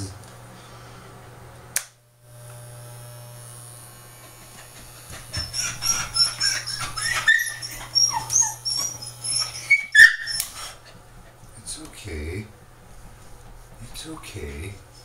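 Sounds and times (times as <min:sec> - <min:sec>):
electric clippers humming: 0:00.0 - 0:11.2
dog whimpering and yelping: 0:04.8 - 0:11.0.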